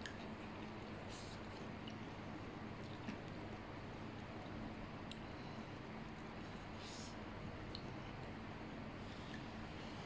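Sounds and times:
person chewing noodles: 0:00.0 - 0:03.4
steady low hum: 0:00.0 - 0:10.0.

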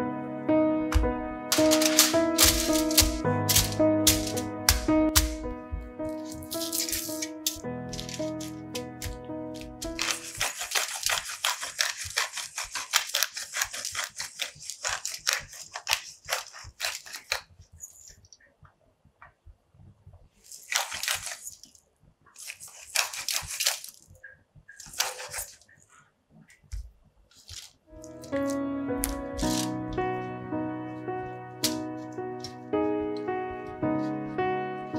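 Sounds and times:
pepper mill grinding: 0:01.5 - 0:05.4, 0:06.0 - 0:18.1, 0:20.4 - 0:21.8, 0:22.4 - 0:24.0, 0:24.8 - 0:25.6, 0:27.4 - 0:29.8.

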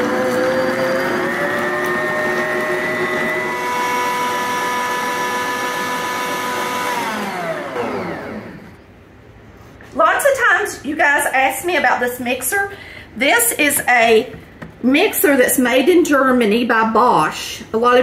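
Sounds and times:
stand mixer motor running: 0:00.0 - 0:08.8
mixer motor spinning down: 0:00.0 - 0:08.9.

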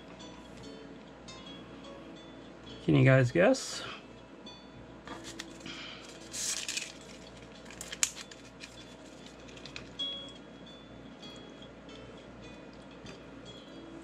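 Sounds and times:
paper sleeve rustling: 0:05.1 - 0:09.9.

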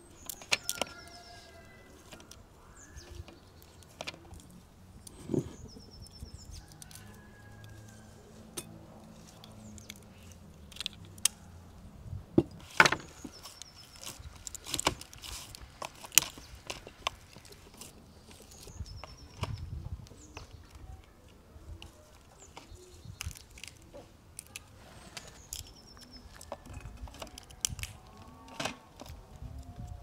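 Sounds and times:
faint birdsong: 0:00.0 - 0:30.0.

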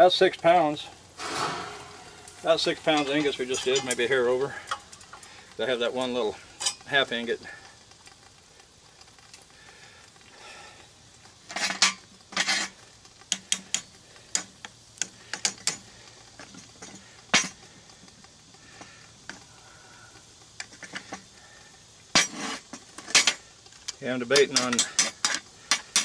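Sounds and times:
metal clanks and clinks: 0:01.2 - 0:04.9
scraping metal clatters: 0:01.2 - 0:05.2, 0:11.5 - 0:12.8.

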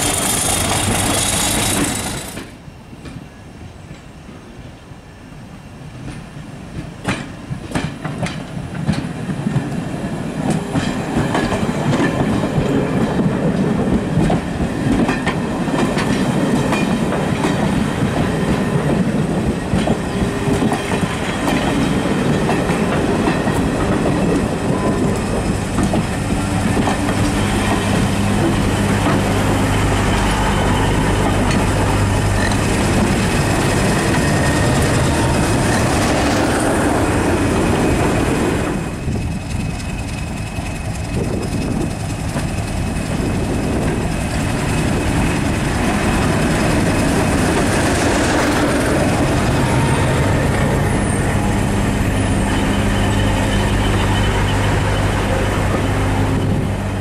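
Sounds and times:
train wheels rumbling: 0:00.0 - 0:04.3, 0:05.8 - 0:57.0
diesel locomotive engine drone: 0:00.0 - 0:57.0.

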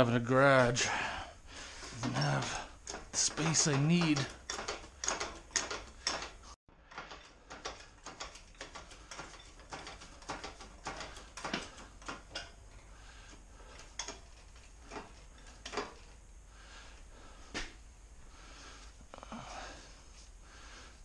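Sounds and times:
engine hoist clicking and ratcheting: 0:02.0 - 0:16.1.

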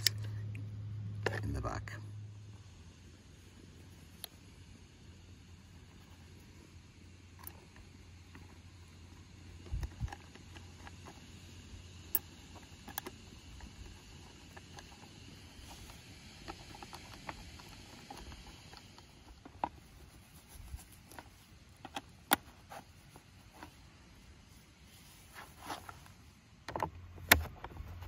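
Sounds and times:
small metal parts clicking: 0:07.3 - 0:19.8.

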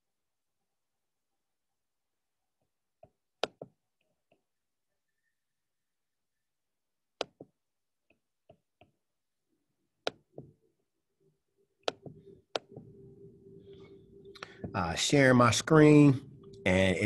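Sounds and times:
computer mouse clicking: 0:03.4 - 0:03.8, 0:11.8 - 0:12.9
low steady hum: 0:09.3 - 0:17.0.

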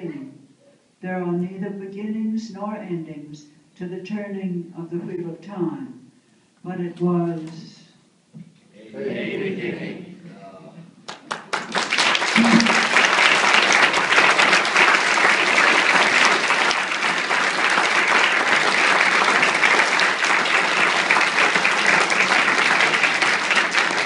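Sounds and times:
audience applauding: 0:11.1 - 0:24.0.

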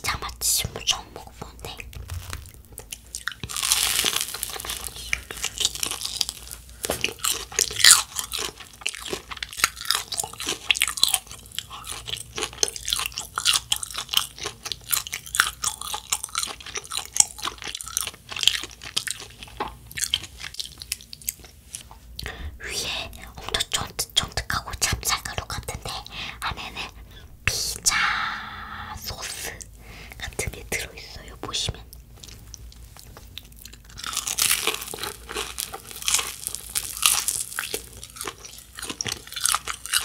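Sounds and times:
crunchy snack chewing: 0:01.7 - 0:21.8, 0:32.2 - 0:40.0.

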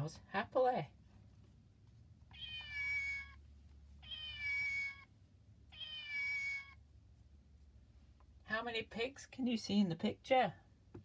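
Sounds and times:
recorded cat meow: 0:02.3 - 0:03.4, 0:04.0 - 0:05.1, 0:05.7 - 0:06.8.

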